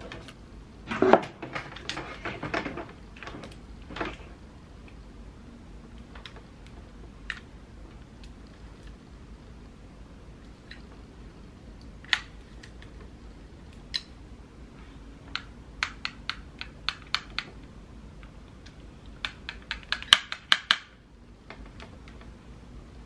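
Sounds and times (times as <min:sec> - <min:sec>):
flat iron plastic clicks: 0:15.3 - 0:22.3.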